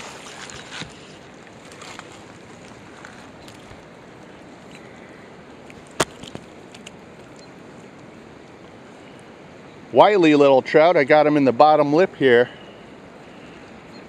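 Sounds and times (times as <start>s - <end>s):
wind: 0.0s - 14.0s.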